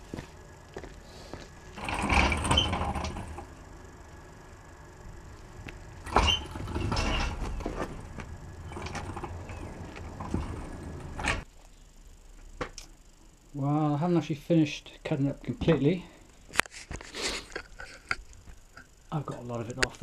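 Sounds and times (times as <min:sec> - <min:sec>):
caster wheels rumbling on concrete: 0:01.6 - 0:11.5
steel frame and chain rattling: 0:01.8 - 0:03.6, 0:05.9 - 0:11.4.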